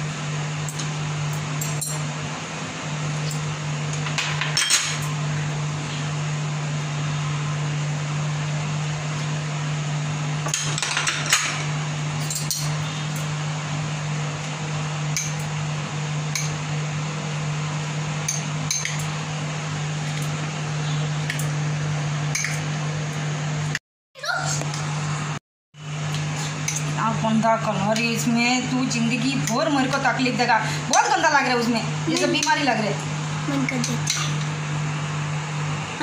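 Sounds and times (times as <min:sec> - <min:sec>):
glass bowls clinking: 0:03.2 - 0:05.1, 0:12.2 - 0:12.8.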